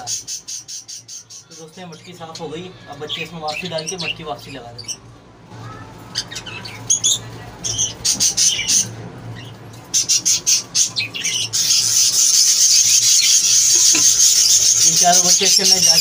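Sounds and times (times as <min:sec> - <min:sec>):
budgerigars chirping and squawking: 0:00.0 - 0:05.0, 0:05.7 - 0:16.0
budgie chicks begging: 0:05.6 - 0:16.0.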